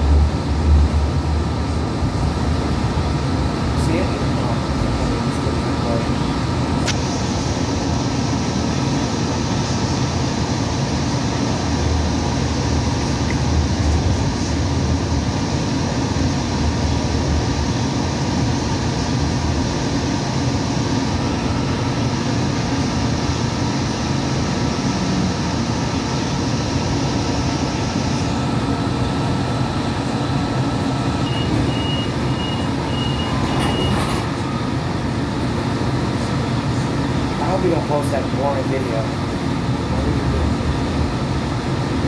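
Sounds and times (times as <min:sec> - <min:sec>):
rail car rumble and hum: 0:00.0 - 0:42.0
short high beeps: 0:31.2 - 0:34.0.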